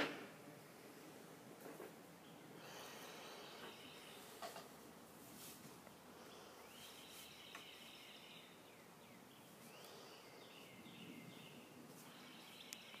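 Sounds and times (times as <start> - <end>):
high chirping calls: 6.2 - 13.0.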